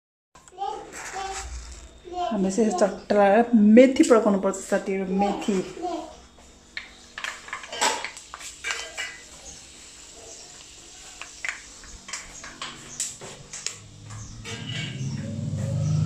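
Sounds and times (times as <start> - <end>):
seeds popping in hot oil: 6.8 - 13.9.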